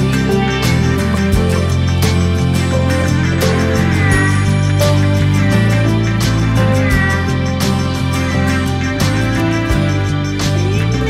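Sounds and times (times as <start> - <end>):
background music with even beat: 0.0 - 11.0.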